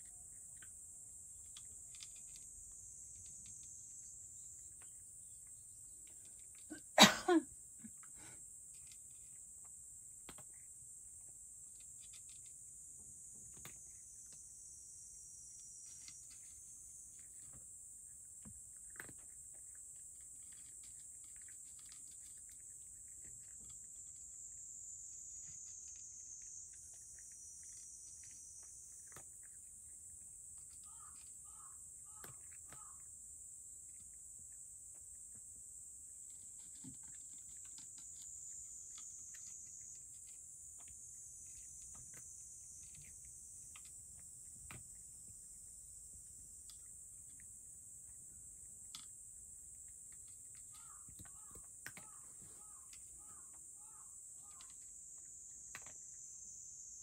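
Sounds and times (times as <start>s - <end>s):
cat chewing and licking: 0.0s - 7.0s, 7.8s - 53.1s.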